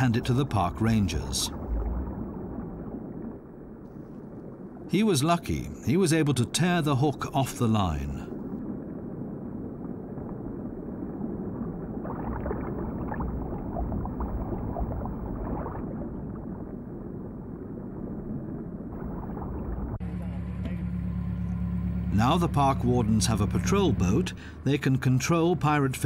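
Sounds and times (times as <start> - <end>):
scuba exhaust bubbles: 8.4 - 20.0.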